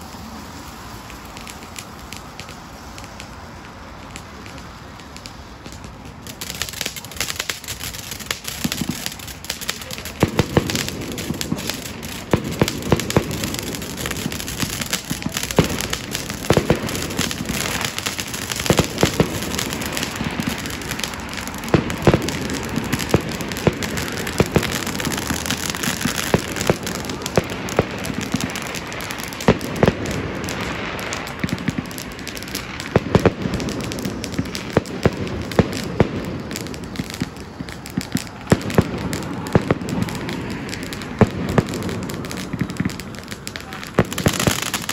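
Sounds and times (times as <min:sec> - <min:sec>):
firework cracks and pops: 0:00.0 - 0:44.9
spark fountains fizzing: 0:00.0 - 0:44.9.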